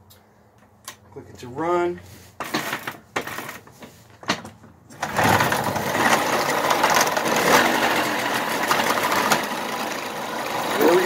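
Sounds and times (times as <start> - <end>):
moped engine kick-started and running: 4.3 - 11.0.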